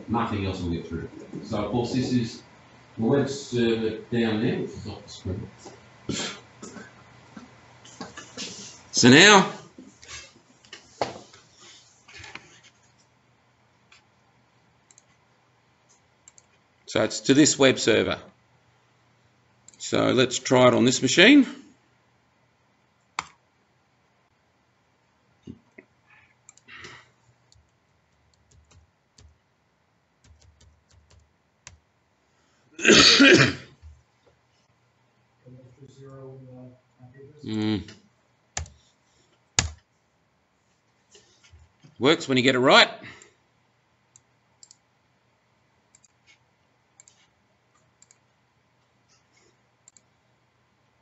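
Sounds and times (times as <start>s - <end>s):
faint computer mouse clicks: 14.9s - 15.1s, 15.9s - 16.6s, 44.1s - 44.8s, 45.9s - 46.4s, 47.0s - 48.2s, 49.8s - 50.1s
keyboard typing: 23.2s - 23.4s, 27.5s - 29.4s, 30.2s - 31.8s, 38.6s - 38.8s, 39.6s - 39.8s, 47.0s - 48.2s
mouse clicks: 44.1s - 44.8s.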